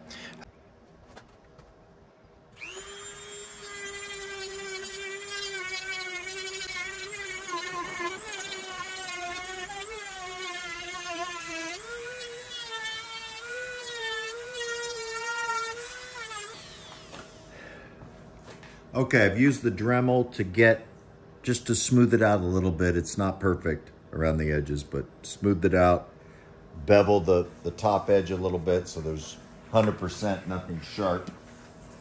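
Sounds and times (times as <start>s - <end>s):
rotary tool whining: 2.6s - 17.6s.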